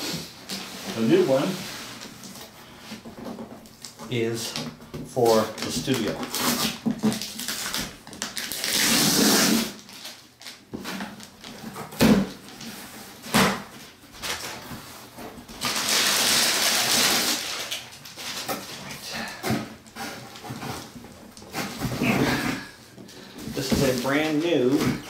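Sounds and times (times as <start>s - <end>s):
packing tape ripping: 5.4s - 10.6s, 15.6s - 19.4s.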